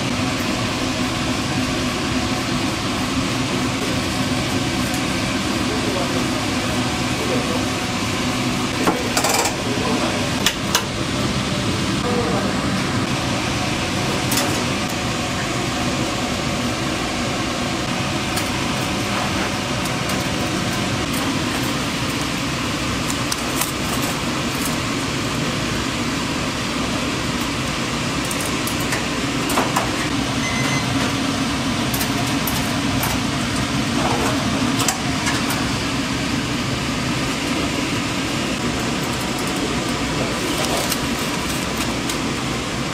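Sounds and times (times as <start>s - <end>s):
hum and hiss of cooking equipment: 0.0s - 42.9s
utensils clicking and clinking: 8.8s - 9.8s.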